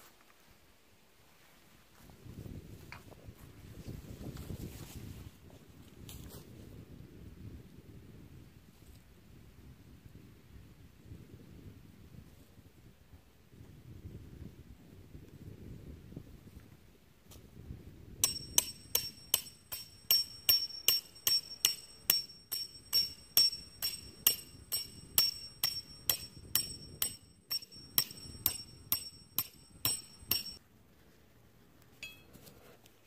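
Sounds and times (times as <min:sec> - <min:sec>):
hammer striking metal tent peg: 0:18.2 - 0:30.6, 0:32.0 - 0:32.3.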